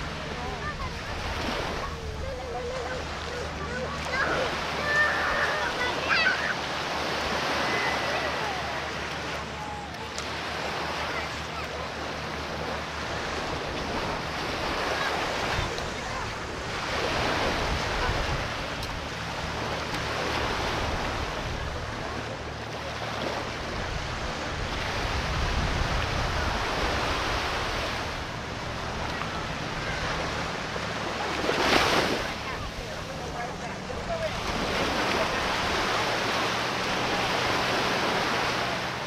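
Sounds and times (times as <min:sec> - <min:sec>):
surf washing up sand: 0:00.0 - 0:39.0
wind on microphone: 0:12.6 - 0:22.2, 0:23.5 - 0:32.7.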